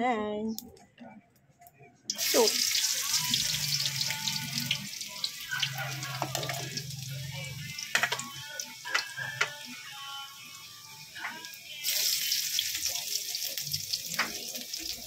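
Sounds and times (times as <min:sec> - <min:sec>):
food sizzling in hot oil: 0:02.1 - 0:15.0
oil popping and crackling: 0:05.5 - 0:06.9, 0:07.8 - 0:09.6, 0:12.4 - 0:15.0.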